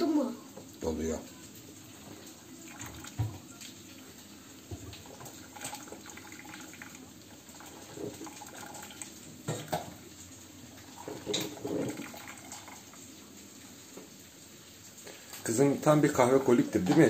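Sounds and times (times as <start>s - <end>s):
water dripping into coffee carafe: 0.5s - 17.0s.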